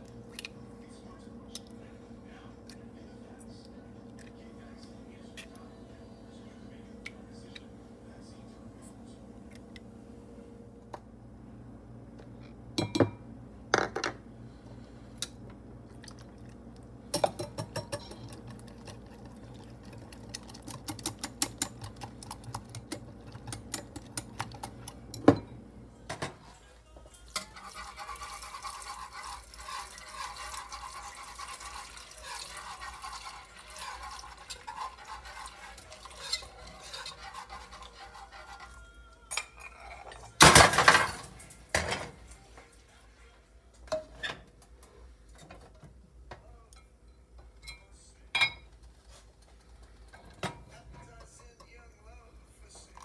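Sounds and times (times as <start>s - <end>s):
whisk swishing liquid in pot: 27.4s - 38.8s.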